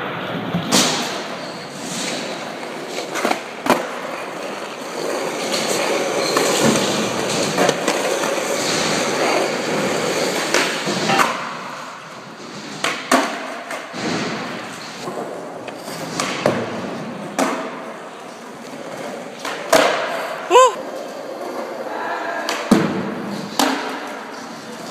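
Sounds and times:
skateboard wheels rolling on concrete: 0.0 - 24.9.

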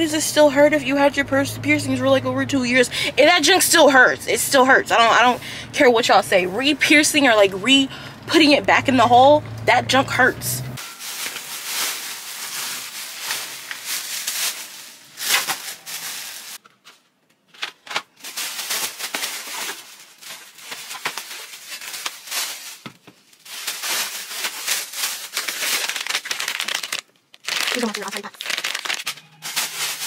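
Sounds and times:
plastic bags rustling: 10.8 - 16.9, 17.6 - 30.0.

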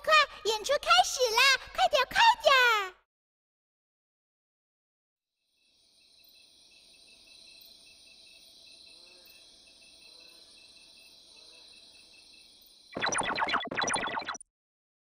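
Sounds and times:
crickets chirring: 5.4 - 13.0.

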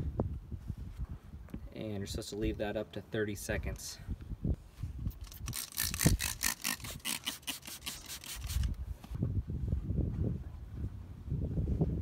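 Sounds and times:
spray bottle squirts: 5.1 - 8.8.

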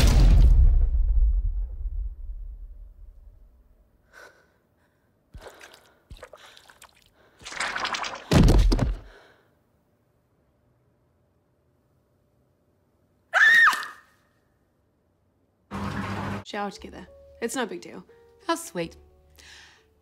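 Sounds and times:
low rumble: 0.0 - 3.6.

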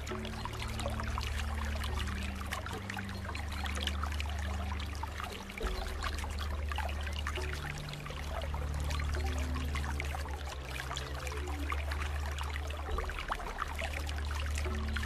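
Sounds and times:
aquarium water bubbling: 0.0 - 15.0.

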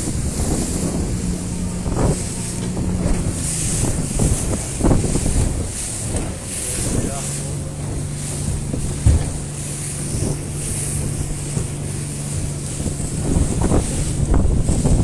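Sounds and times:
boat engine humming: 0.0 - 15.0
water splashing against boat: 0.0 - 15.0
wind buffeting microphone: 0.0 - 15.0.

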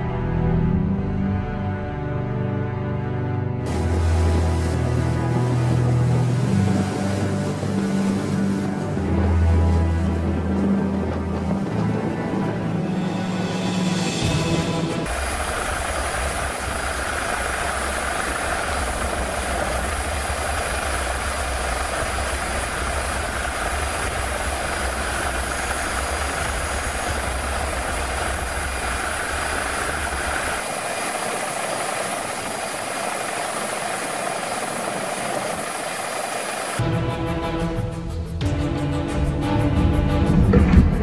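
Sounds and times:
helicopter engine and rotor noise: 15.1 - 36.8.

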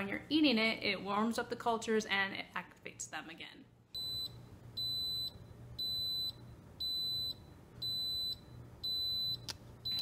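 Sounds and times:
pressure cooker high beeps: 4.0 - 10.0.

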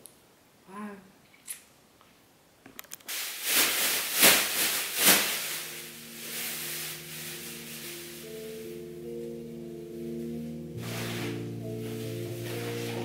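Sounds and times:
clicks: 2.6 - 3.1
loud hissing noise: 3.1 - 8.7
soft sustained musical notes: 5.4 - 13.0.

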